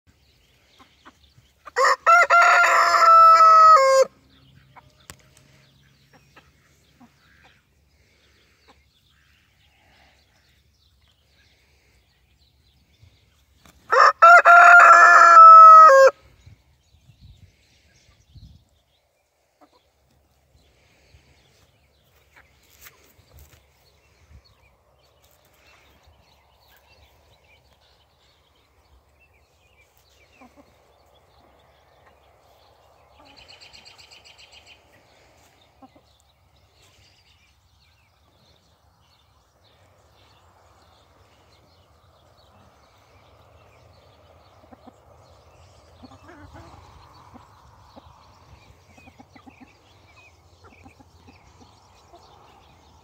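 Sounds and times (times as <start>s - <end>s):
chickens pecking: 19.5s - 20.6s, 21.6s - 23.8s, 28.6s - 33.9s, 38.1s - 52.9s.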